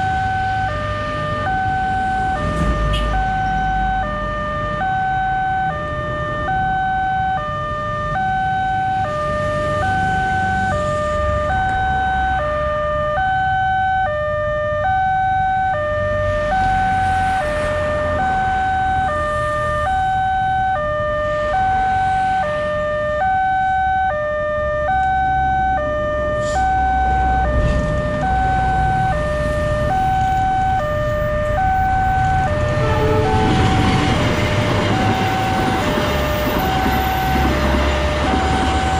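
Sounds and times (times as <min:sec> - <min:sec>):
level crossing alarm two-tone: 0:00.0 - 0:17.4, 0:18.1 - 0:38.9
approaching train: 0:26.4 - 0:38.9.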